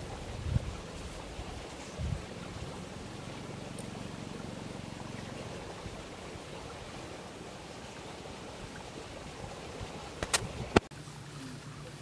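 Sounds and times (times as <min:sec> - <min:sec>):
wind on microphone: 0:00.0 - 0:03.3, 0:08.7 - 0:10.9.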